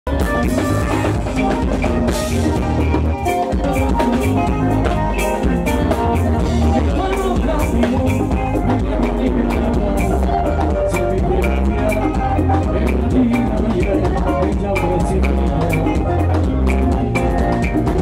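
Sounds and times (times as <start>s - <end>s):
live band music: 0.0s - 18.0s
drum kit beat: 0.1s - 18.0s.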